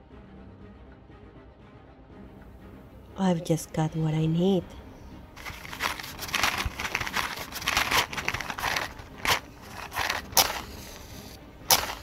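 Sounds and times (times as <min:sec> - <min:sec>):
match striking on matchbox: 0:05.4 - 0:12.0
rustling and scraping: 0:05.4 - 0:12.0.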